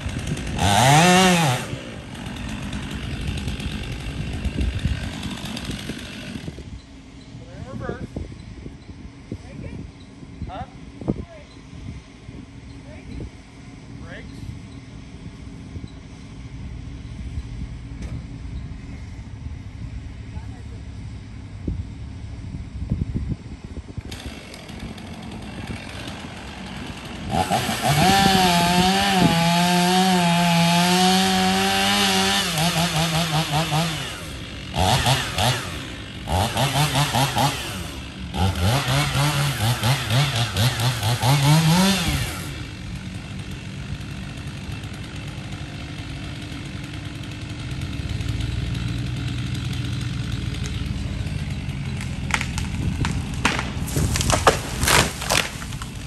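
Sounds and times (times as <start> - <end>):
chainsaw cutting wood: 0.0 - 6.9, 24.0 - 56.0.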